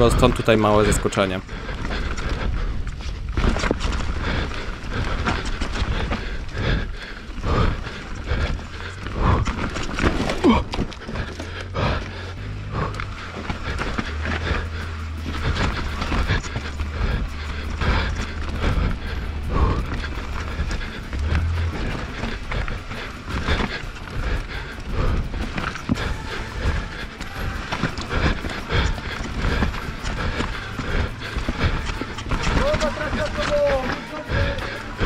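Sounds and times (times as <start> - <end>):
wind rumble on microphone: 0.0 - 12.0
mountain bike clattering: 0.0 - 35.0.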